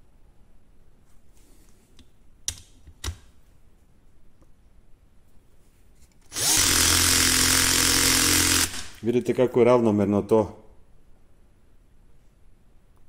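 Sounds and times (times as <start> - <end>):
cordless drill driving screw into wood: 6.3 - 9.0.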